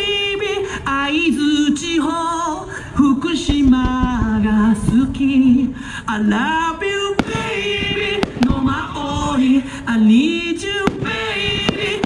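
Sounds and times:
song with sung vocals: 0.0s - 12.0s
fireworks bangs: 3.4s - 5.7s, 6.5s - 12.0s.

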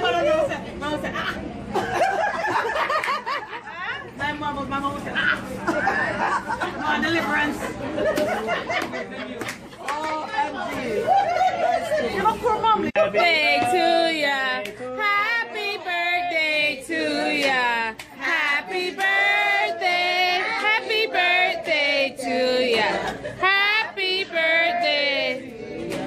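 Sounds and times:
group of people singing together: 13.0s - 26.0s.

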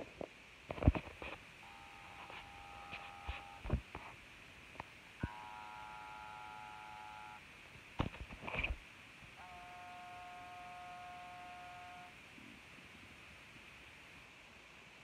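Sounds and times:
electronic chord tones: 1.6s - 3.6s, 5.2s - 7.4s, 9.4s - 12.2s.

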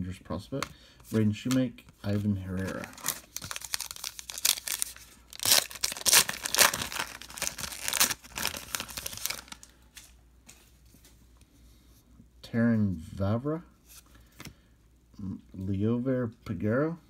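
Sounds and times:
wrapper tearing and crinkling: 2.5s - 9.7s.

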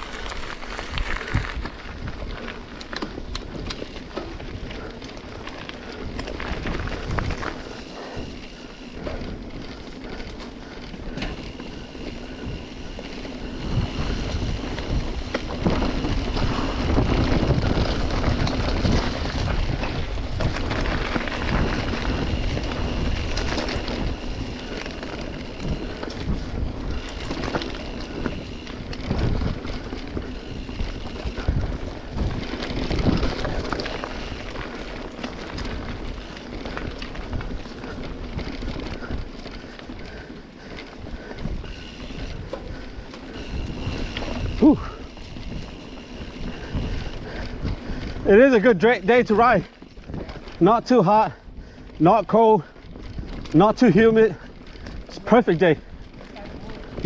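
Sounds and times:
bike knocking and rattling: 0.0s - 57.0s
bike tyres rolling on dirt: 0.0s - 57.0s
wind on microphone: 11.1s - 40.3s, 40.9s - 48.4s.

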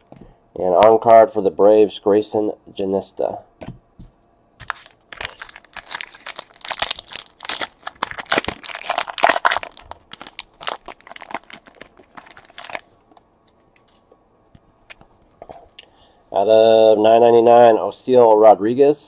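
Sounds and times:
foil pack tearing and crinkling: 4.6s - 12.8s.

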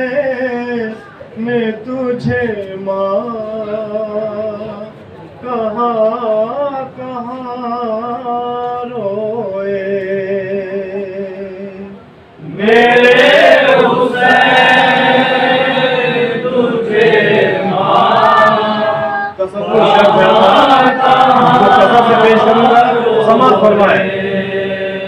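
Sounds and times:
men singing in chorus: 12.4s - 25.0s.

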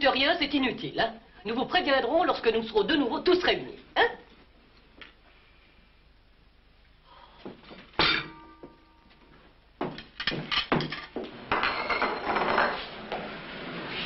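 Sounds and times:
tableware clinking and clattering: 8.0s - 9.0s, 9.9s - 13.0s.

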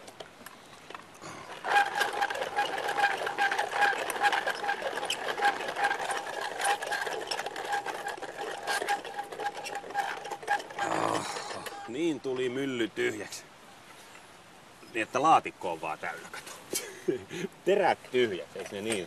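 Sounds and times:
hand-cranked coffee mill grinding: 1.2s - 11.9s.

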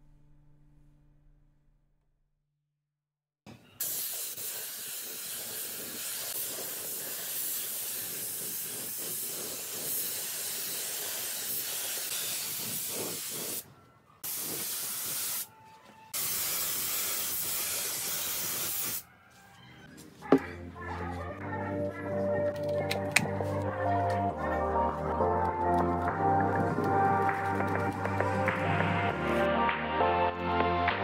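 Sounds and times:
spray gun hissing: 3.8s - 13.6s, 14.2s - 15.5s, 16.2s - 19.0s.

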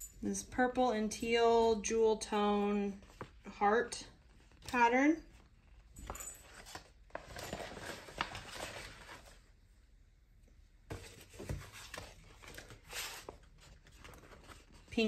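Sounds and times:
paper rustling and sliding: 6.6s - 9.4s, 10.9s - 14.9s.

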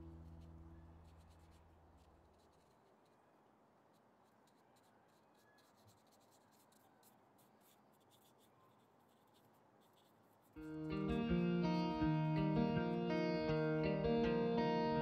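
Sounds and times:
paintbrush scratching on paper: 0.2s - 12.0s
guitar music: 10.6s - 15.0s.

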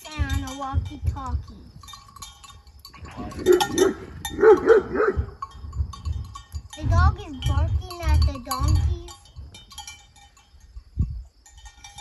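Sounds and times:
small bells tinkling: 0.0s - 4.7s, 5.4s - 12.0s
donkey braying: 3.0s - 5.5s.

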